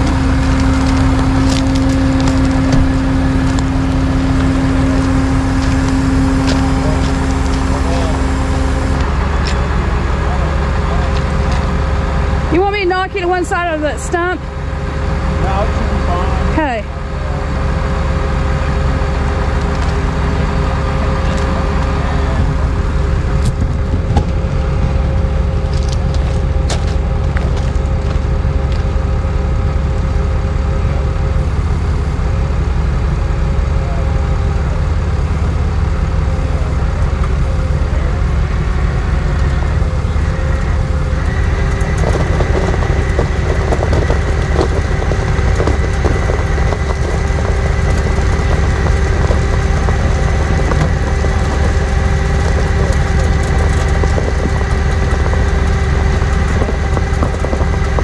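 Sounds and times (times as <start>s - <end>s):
steady whine: 0.0s - 58.0s
truck engine idling: 0.0s - 58.0s.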